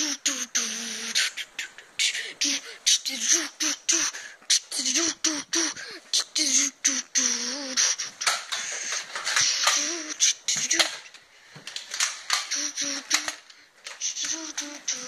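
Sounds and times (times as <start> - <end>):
child's high-pitched vocal noises: 0.0 - 11.1, 12.3 - 15.0
toy blaster clicks and clatter: 8.2 - 15.0.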